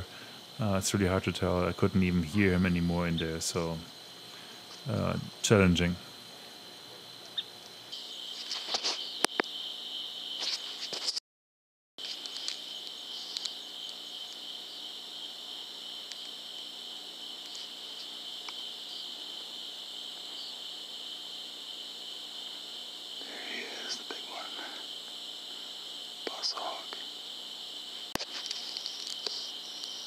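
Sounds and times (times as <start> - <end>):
night insects trilling: 0.0 - 11.2, 12.0 - 30.0
sharp clicks and rustles: 12.0 - 14.4, 28.1 - 30.0.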